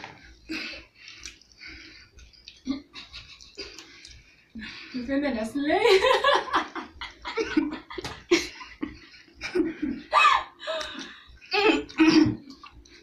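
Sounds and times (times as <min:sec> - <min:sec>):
women laughing: 0:05.8 - 0:11.0.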